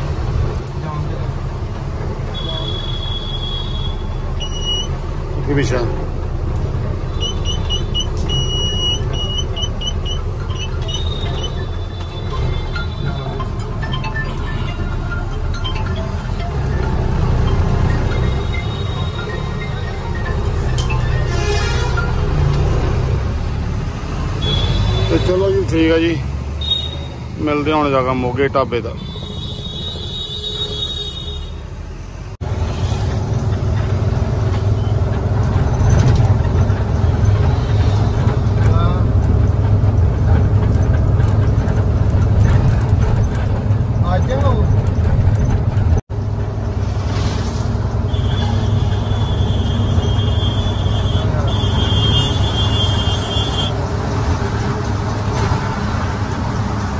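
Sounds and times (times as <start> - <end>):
road noise: 0.0 - 56.9
truck engine running: 4.1 - 21.3, 32.4 - 56.9
short high beeps: 7.2 - 21.4.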